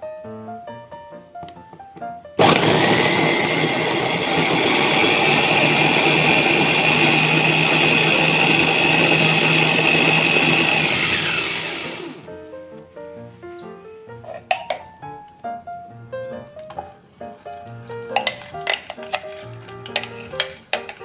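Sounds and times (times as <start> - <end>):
food chopper motor whine: 2.4 - 12.3.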